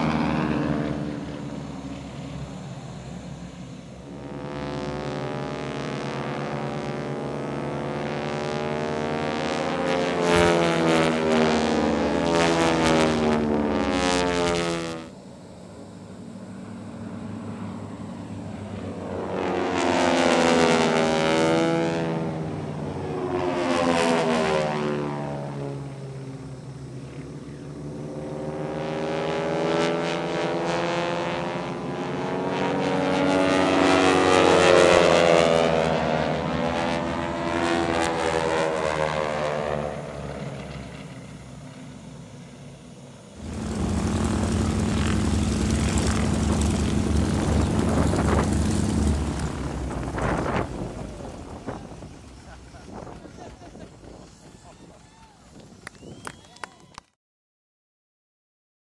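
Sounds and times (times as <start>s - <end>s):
propeller planes flying past: 0.0s - 57.2s.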